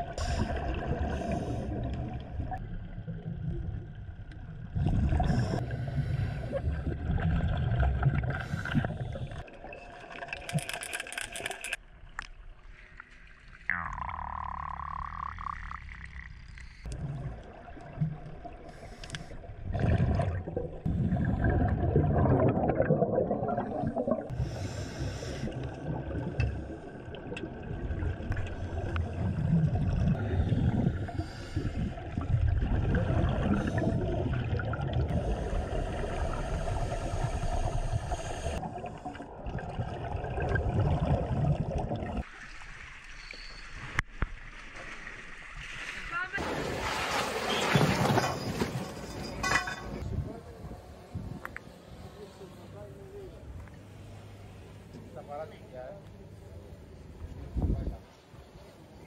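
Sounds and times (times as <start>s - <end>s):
seawater sloshing and splashing: 44.5s - 49.2s.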